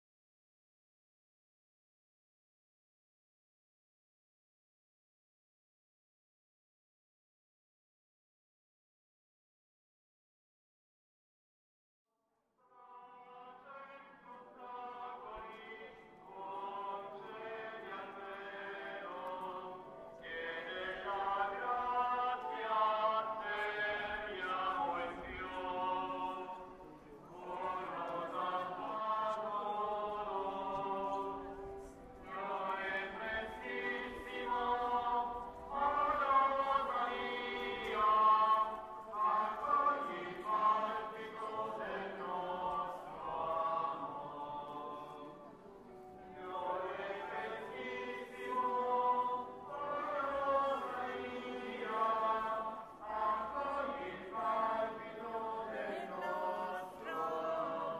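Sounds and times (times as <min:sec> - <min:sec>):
choir chanting: 0:12.7 - 0:57.9.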